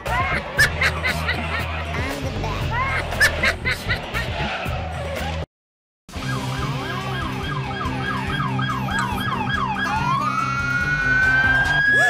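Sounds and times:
police siren yelping and wailing: 6.1s - 12.0s.

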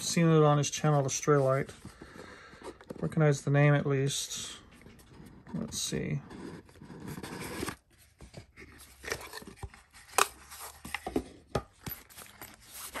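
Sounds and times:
cardboard lid sliding and scraping: 5.0s - 7.8s.

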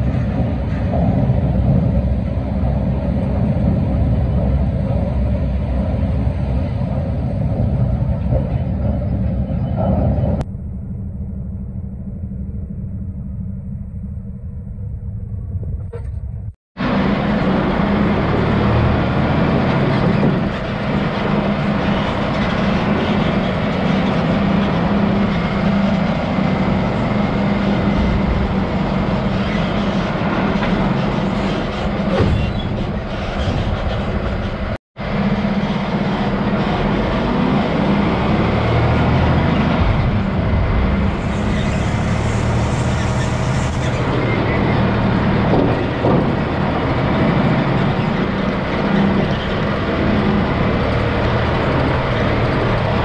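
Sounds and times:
truck diesel engine: 0.0s - 53.0s
road noise on gravel: 16.0s - 53.0s.

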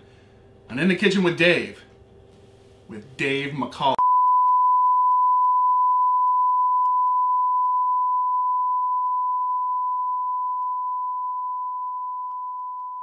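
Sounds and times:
steady test tone beep: 4.0s - 13.0s.

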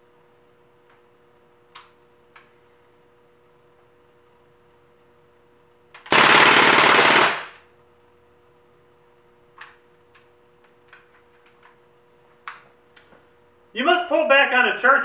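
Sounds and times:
air pistol firing rapid burst: 6.1s - 7.6s.

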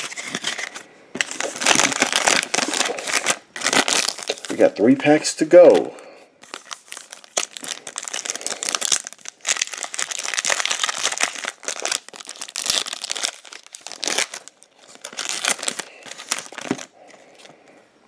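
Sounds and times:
wrapper tearing: 0.0s - 4.7s, 5.6s - 17.5s
plastic wrapper crinkling: 0.0s - 17.5s.

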